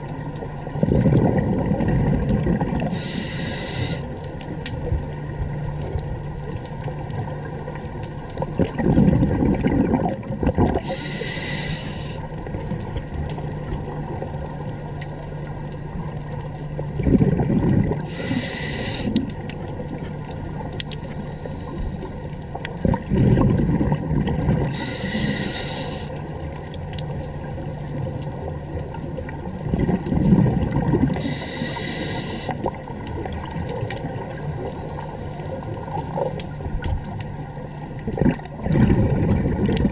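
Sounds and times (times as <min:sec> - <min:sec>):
exhaled bubbles rumbling: 0:00.0 - 0:39.9
steady low hum: 0:00.0 - 0:39.9
regulator breathing hiss: 0:02.9 - 0:04.2, 0:10.8 - 0:12.3, 0:18.0 - 0:19.3, 0:24.7 - 0:26.2, 0:31.2 - 0:32.7.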